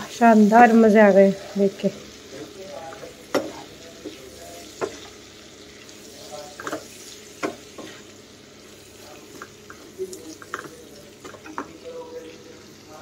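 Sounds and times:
vegetables sizzling in oil: 0:00.0 - 0:13.0
spatula scraping pan: 0:06.2 - 0:08.1.

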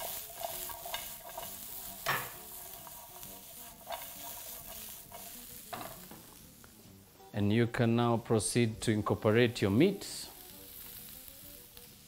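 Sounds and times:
scraping and tossing in pan: 0:00.0 - 0:06.2
vegetables sizzling in pan: 0:00.0 - 0:07.2, 0:08.8 - 0:12.0.

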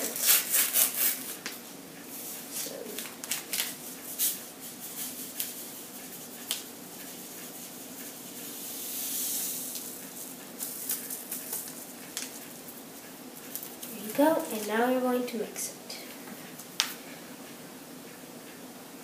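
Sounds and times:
steady low hum: 0:00.0 - 0:19.0
paper packet crinkling: 0:02.9 - 0:04.3, 0:10.6 - 0:12.4
sugar pouring: 0:08.2 - 0:11.9.

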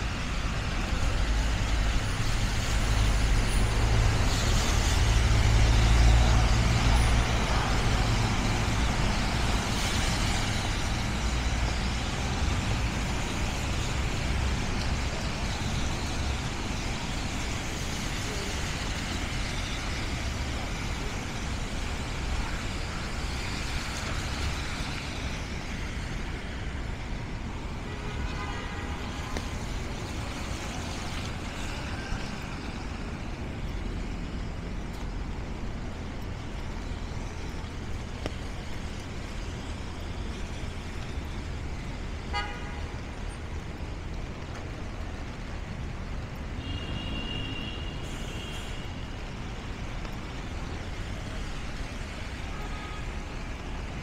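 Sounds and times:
traffic on wet streets: 0:00.0 - 0:54.0
car horn toots: 0:42.3 - 0:42.7.

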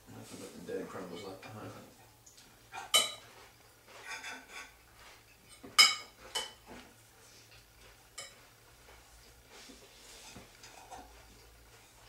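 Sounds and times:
cutlery clinking on bowl: 0:02.8 - 0:06.7, 0:08.2 - 0:08.5.

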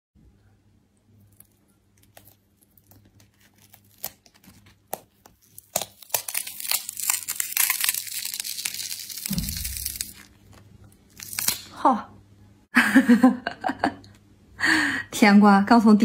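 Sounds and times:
melon rind cracking and tearing: 0:01.2 - 0:11.8
dull low bump: 0:09.3 - 0:10.0.

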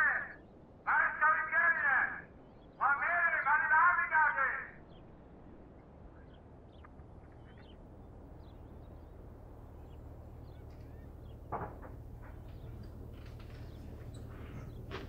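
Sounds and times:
low steady hum: 0:00.0 - 0:15.0
bird chirps and calls: 0:06.1 - 0:07.8.

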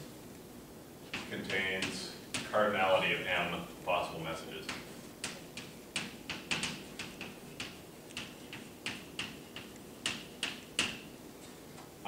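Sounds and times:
chalk tapping and scratching on blackboard: 0:01.1 - 0:03.2, 0:03.9 - 0:11.2.

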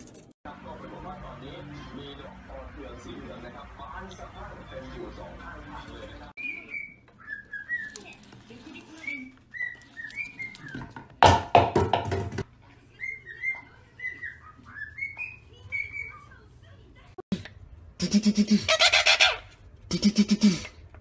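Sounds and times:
parrot chirping: 0:06.3 - 0:08.3, 0:08.9 - 0:10.9, 0:12.9 - 0:16.3, 0:18.0 - 0:19.6.

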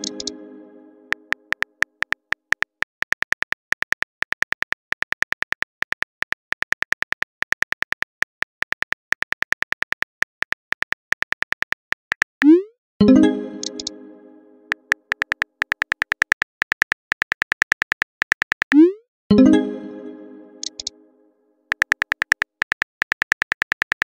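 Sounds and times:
phone keyboard key clicks: 0:01.2 - 0:12.3, 0:14.7 - 0:18.8, 0:20.6 - 0:20.9, 0:21.7 - 0:24.0.

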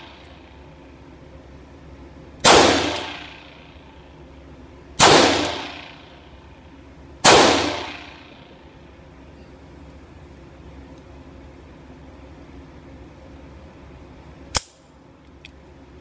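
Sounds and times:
pistol shots echoing indoors: 0:02.4 - 0:03.9, 0:05.0 - 0:06.3, 0:07.2 - 0:08.7.

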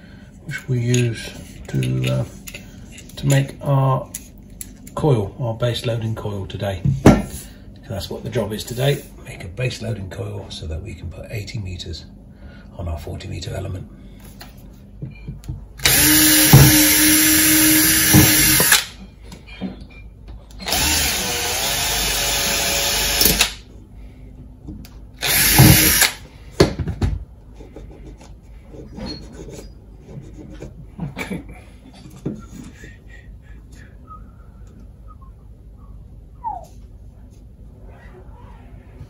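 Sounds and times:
cordless drill boring into plastic: 0:15.8 - 0:18.8, 0:20.6 - 0:23.6, 0:25.2 - 0:26.2.

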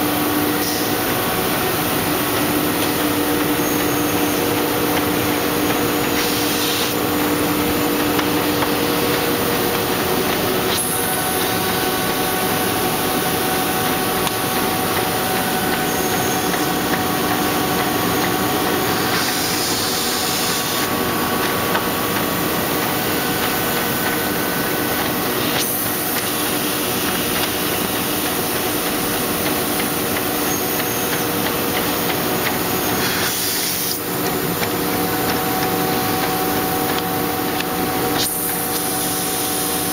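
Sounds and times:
machine clattering and humming: 0:00.0 - 0:39.9.

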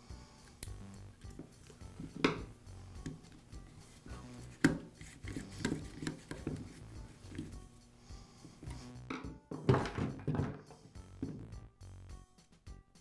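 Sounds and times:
screwdriver turning a cap: 0:04.4 - 0:07.5.

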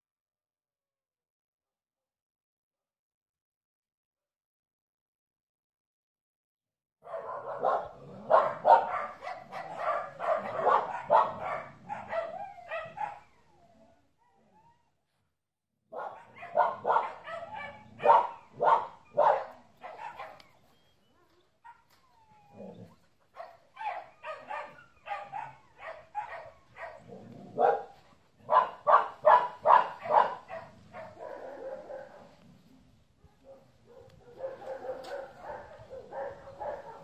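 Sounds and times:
dog barking: 0:07.0 - 0:13.4, 0:15.9 - 0:20.6, 0:21.6 - 0:22.0, 0:22.6 - 0:32.4, 0:33.2 - 0:37.0.

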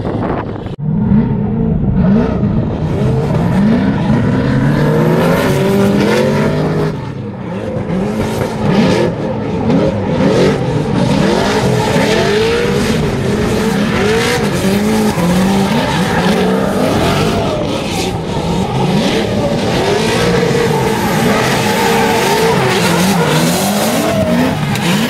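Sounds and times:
car engines revving: 0:00.0 - 0:25.0
tyres squealing: 0:13.8 - 0:25.0.

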